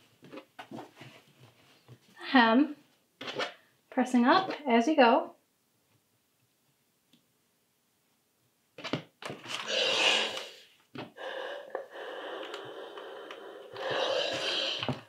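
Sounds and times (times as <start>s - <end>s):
steam iron hissing: 9.7s - 15.0s.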